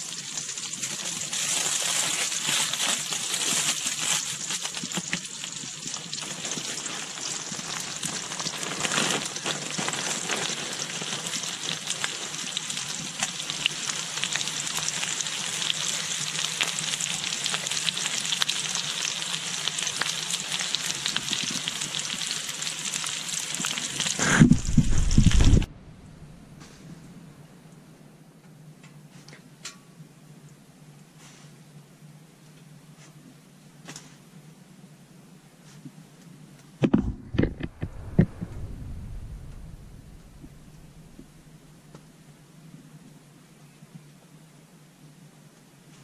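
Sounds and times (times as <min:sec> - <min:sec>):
vegetables sizzling in frying pan: 0:00.0 - 0:25.7
loud low bump and rumble: 0:24.4 - 0:26.6, 0:36.8 - 0:41.8.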